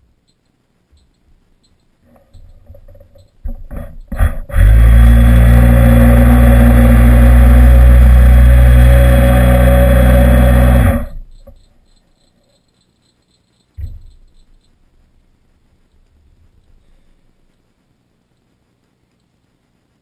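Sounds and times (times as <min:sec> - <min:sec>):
model engine sputtering and droning: 0:03.5 - 0:11.6.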